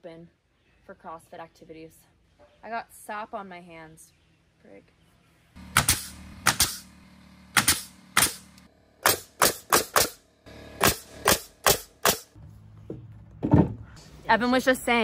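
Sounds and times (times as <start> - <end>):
nail gun shots: 5.7 - 6.9, 7.5 - 10.2, 10.8 - 12.4.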